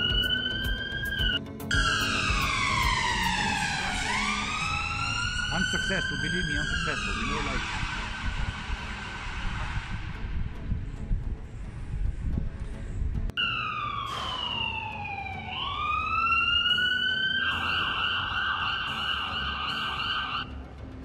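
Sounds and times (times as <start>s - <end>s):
ambulance siren: 0.0s - 9.8s, 13.4s - 20.6s
street noise rumble: 1.7s - 12.2s.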